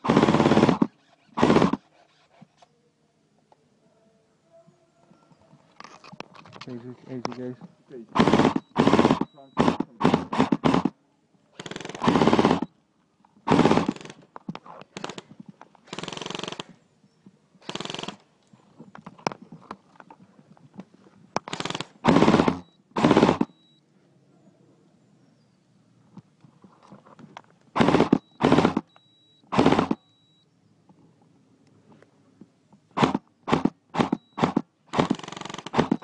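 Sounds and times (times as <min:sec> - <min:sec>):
airsoft rifles firing bursts: 0:00.0 - 0:01.8, 0:08.1 - 0:11.0, 0:11.6 - 0:12.7, 0:13.5 - 0:14.2, 0:15.9 - 0:16.7, 0:17.6 - 0:18.2, 0:21.4 - 0:23.6, 0:27.8 - 0:28.9, 0:29.5 - 0:30.0, 0:33.0 - 0:36.0.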